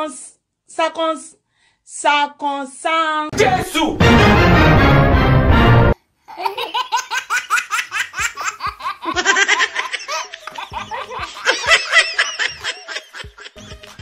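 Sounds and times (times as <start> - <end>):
baby laughing: 6.3 - 14.0.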